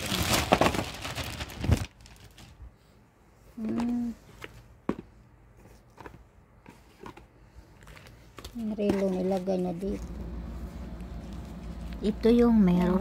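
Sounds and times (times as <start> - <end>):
plastic bag crinkling: 0.0 - 2.6, 7.8 - 13.0
short steady hum: 9.9 - 13.0.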